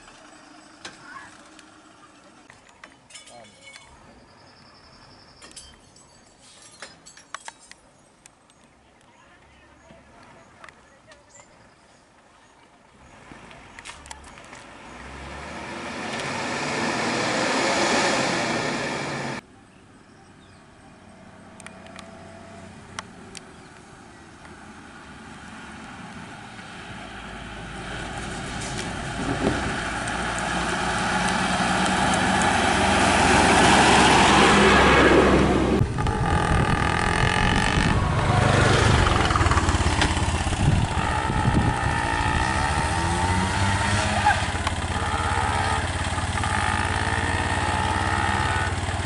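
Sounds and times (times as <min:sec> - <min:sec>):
bus engine running: 0:13.6 - 0:19.4, 0:21.2 - 0:49.0
vehicle engine pitch rising and falling: 0:14.7 - 0:19.4, 0:25.0 - 0:49.0.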